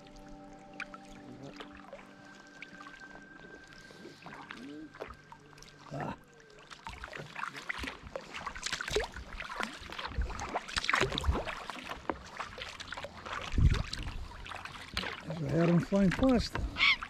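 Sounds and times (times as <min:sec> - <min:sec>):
kayak paddle strokes in water: 0:06.6 - 0:17.0.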